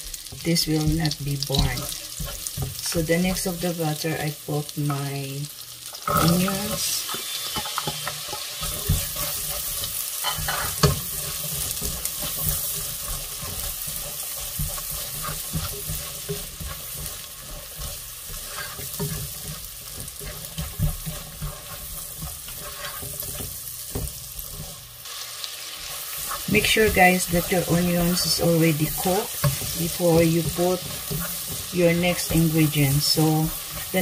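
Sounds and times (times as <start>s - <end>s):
onions sizzling in butter: 0.0s - 34.0s
spatula tapping pot: 7.6s - 24.7s, 26.2s - 34.0s.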